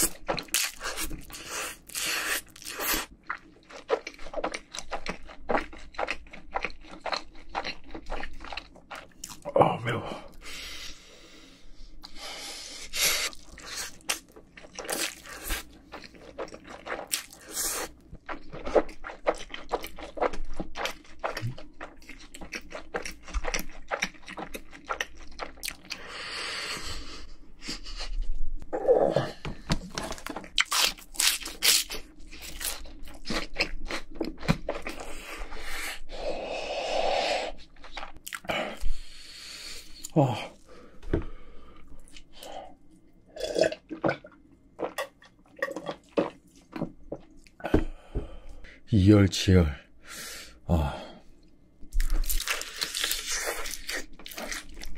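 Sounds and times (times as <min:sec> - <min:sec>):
crunchy chewing: 0:00.0 - 0:09.5, 0:12.9 - 0:28.2, 0:30.0 - 0:35.8, 0:41.6 - 0:47.6, 0:51.9 - 0:54.9.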